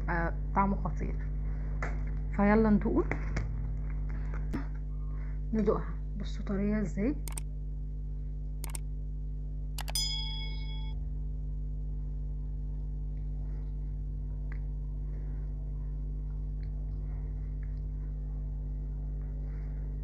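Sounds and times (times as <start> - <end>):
steady low hum: 0.0 - 20.0
click: 9.8 - 10.0
bell-like ding: 9.8 - 11.0
faint chewing: 16.2 - 18.3.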